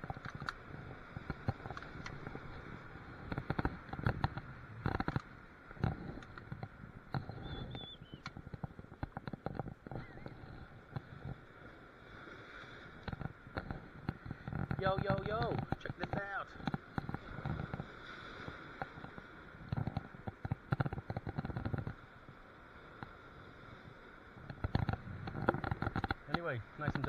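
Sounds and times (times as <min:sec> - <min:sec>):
irregular knocks and clicks: 0:00.0 - 0:02.5, 0:03.2 - 0:11.4, 0:13.0 - 0:17.8, 0:18.8 - 0:22.0, 0:24.4 - 0:27.0.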